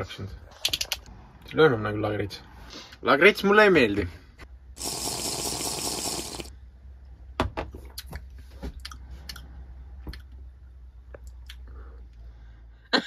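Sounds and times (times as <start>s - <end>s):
hissing noise burst: 4.8s - 6.5s.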